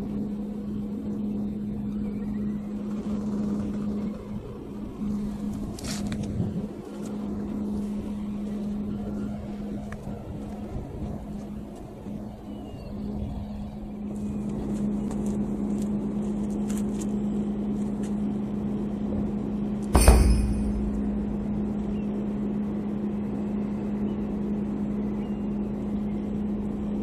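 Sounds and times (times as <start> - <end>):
boat engine idling hum: 0.0 - 27.0
rushing background noise: 0.0 - 27.0
sharp thump: 20.0 - 21.6.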